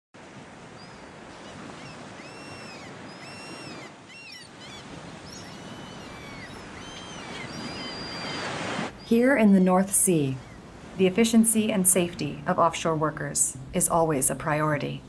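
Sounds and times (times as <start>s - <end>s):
rush of open sea: 0.2s - 13.8s
seabirds calling: 0.7s - 12.5s.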